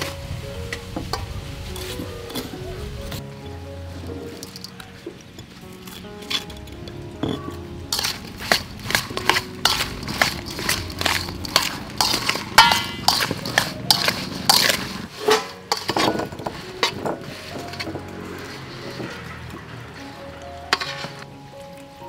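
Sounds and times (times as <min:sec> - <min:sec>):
metal spoon scraping metal bowl: 0:05.8 - 0:21.3.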